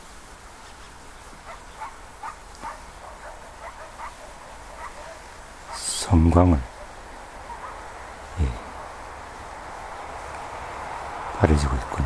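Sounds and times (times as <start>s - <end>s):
steady background hiss: 0.0s - 12.0s
short faint animal calls: 1.4s - 6.0s, 6.6s - 9.1s.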